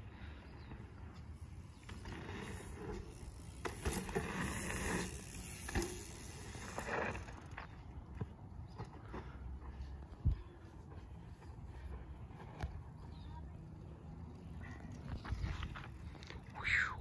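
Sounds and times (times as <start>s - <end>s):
bike tyres rolling on dirt: 0.0s - 17.0s
bike knocks and rattles: 1.8s - 9.4s.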